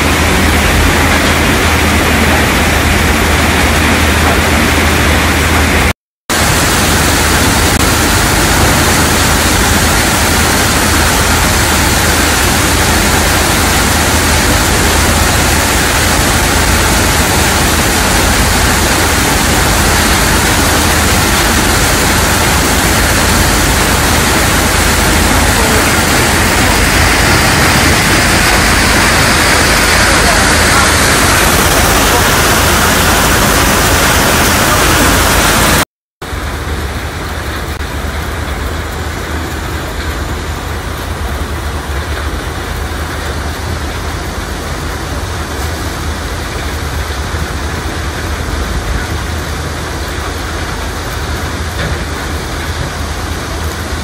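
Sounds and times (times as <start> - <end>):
low machinery hum: 0.0 - 54.0
machinery hiss: 6.3 - 35.8.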